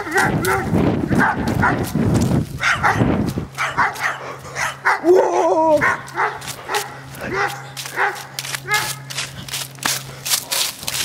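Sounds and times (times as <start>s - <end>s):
dog barking: 0.0s - 2.0s, 2.6s - 9.1s.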